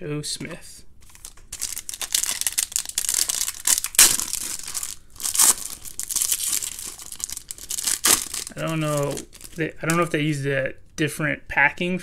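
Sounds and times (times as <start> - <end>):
foil wrapper tearing and crinkling: 1.0 - 9.6.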